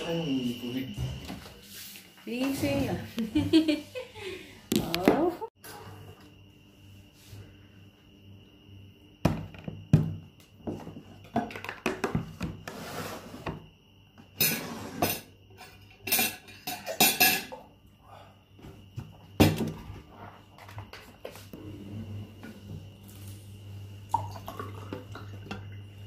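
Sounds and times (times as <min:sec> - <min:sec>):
short scrapes on table: 0:12.7 - 0:13.4
tableware knocking and clinking: 0:14.3 - 0:17.6.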